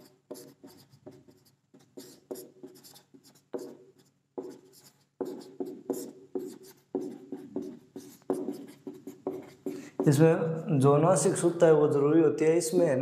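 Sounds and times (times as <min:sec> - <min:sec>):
marker squeaking on whiteboard: 0:00.0 - 0:10.2.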